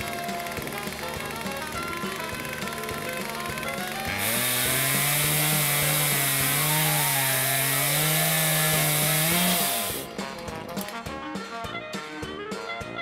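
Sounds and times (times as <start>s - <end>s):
chainsaw cutting log: 0.0s - 10.1s.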